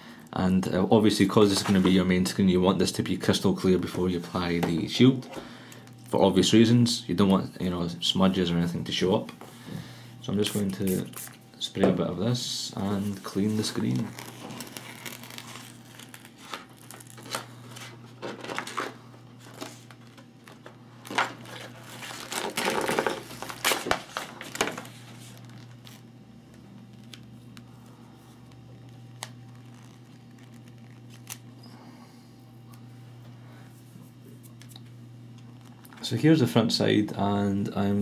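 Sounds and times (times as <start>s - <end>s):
low steady hum: 0.0s - 38.0s
plastic film crinkling: 12.9s - 31.6s.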